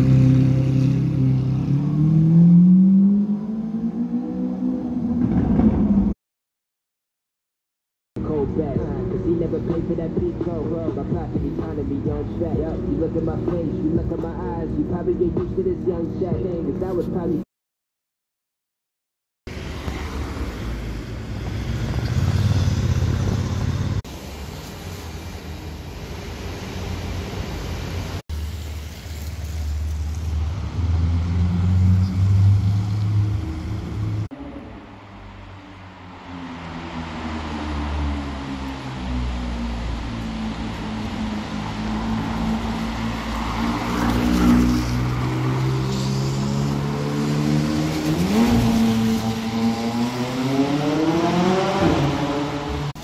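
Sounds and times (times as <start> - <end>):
car passing on wet road: 19.5 - 34.3, 35.2 - 53.0
car engine revving: 37.0 - 53.0.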